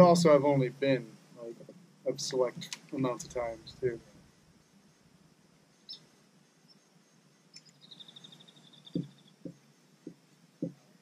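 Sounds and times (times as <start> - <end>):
bird chirping: 5.7 - 10.8
soft low knocks: 8.9 - 10.9.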